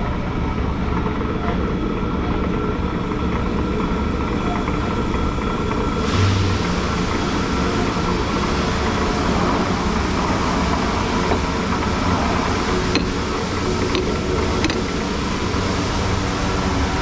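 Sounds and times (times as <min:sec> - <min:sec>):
mechanical running noise: 0:00.0 - 0:17.0
short low thump: 0:06.1 - 0:06.9.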